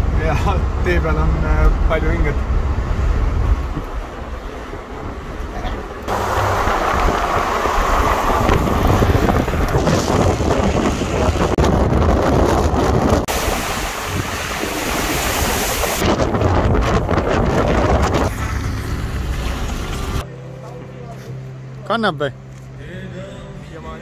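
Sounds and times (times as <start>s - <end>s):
vehicle road rumble: 0.0s - 24.0s
wind rushing over microphone: 1.7s - 20.2s.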